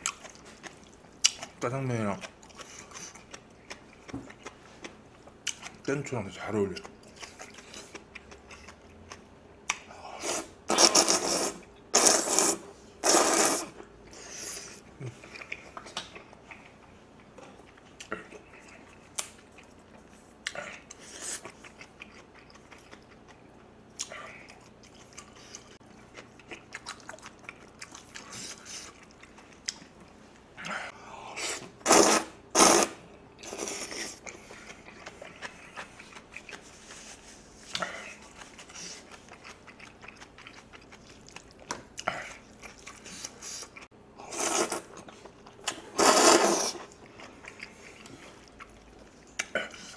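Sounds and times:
chewing and mouth sounds: 0:00.0 - 0:11.4, 0:13.1 - 0:49.9
loud noodle slurping: 0:10.2 - 0:13.8, 0:31.4 - 0:34.2, 0:44.2 - 0:44.9, 0:45.8 - 0:46.9.

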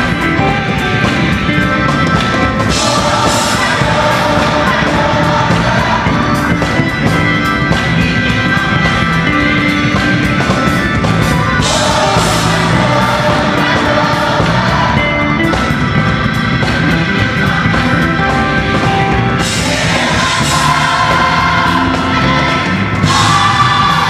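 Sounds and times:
gospel choir singing: 0:00.0 - 0:24.0
live band: 0:00.0 - 0:24.0.

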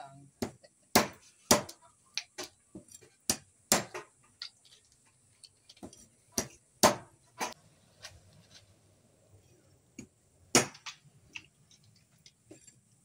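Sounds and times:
knife chopping on wooden block: 0:00.4 - 0:01.8.

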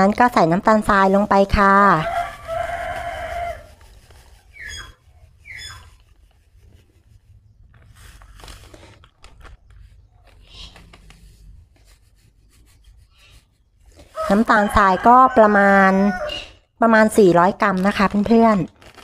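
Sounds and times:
plastic bag crinkling: 0:02.0 - 0:11.6, 0:17.3 - 0:19.0.

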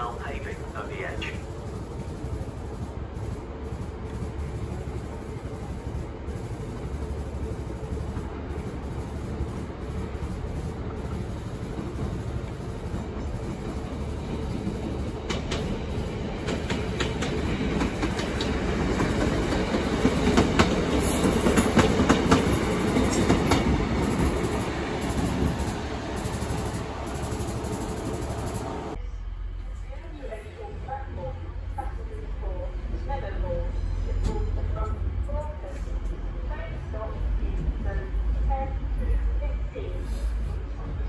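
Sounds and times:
diesel train rumble: 0:00.0 - 0:41.0
train wheels clicking over rail joints: 0:07.9 - 0:28.7.

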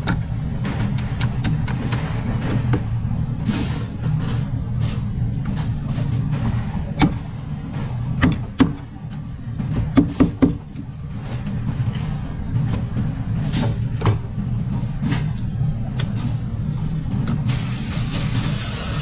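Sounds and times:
steady low hum: 0:00.0 - 0:19.0
water spray hissing: 0:17.5 - 0:19.0.

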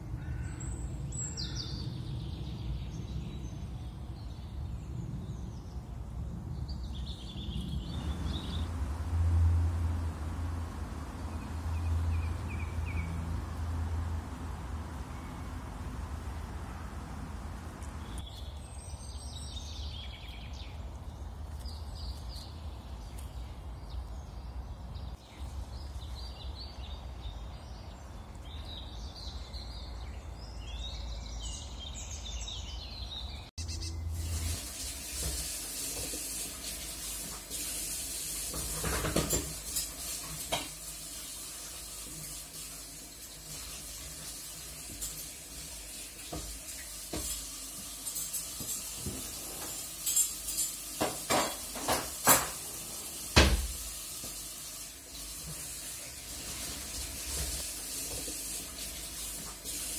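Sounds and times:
high chirps: 0:33.5 - 0:34.4
sizzling hiss: 0:33.7 - 0:59.9.

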